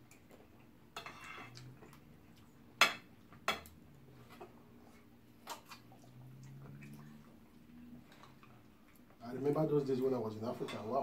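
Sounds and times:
cutlery clinking on ceramic plates: 1.0s - 1.7s, 2.8s - 4.5s, 10.5s - 11.0s.

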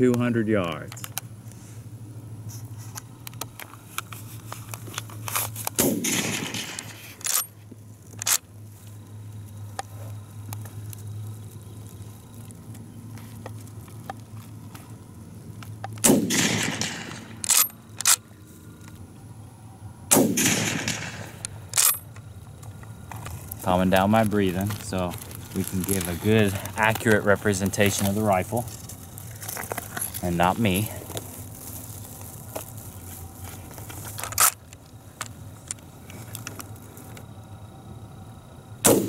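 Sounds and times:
rifle shots with echo: 5.8s - 6.8s, 16.0s - 17.4s, 20.1s - 21.4s
metallic rifle bolt clacks: 16.3s - 18.2s.

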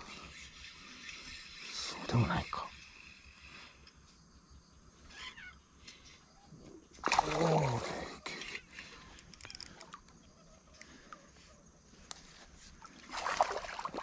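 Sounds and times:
fish splashing in water: 7.0s - 7.7s, 12.8s - 14.0s.

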